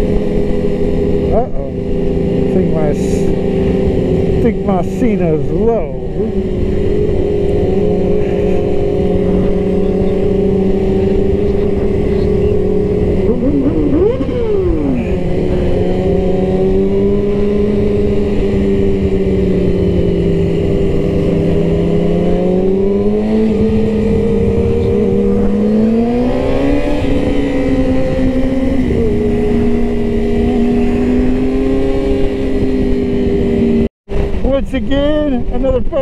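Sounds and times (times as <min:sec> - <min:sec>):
motorcycle engine cruising: 0:00.0 - 0:36.0
wind noise: 0:00.0 - 0:36.0
another engine revving: 0:05.4 - 0:33.9.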